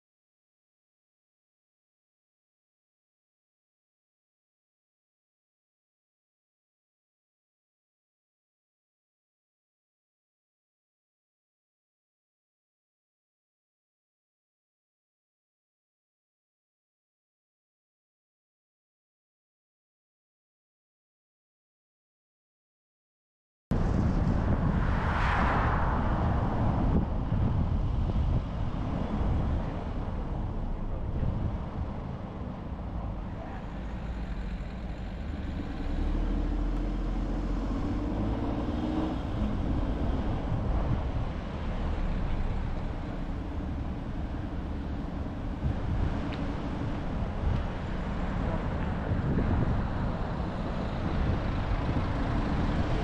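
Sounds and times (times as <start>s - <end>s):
car engine and tyre road noise: 23.7s - 53.0s.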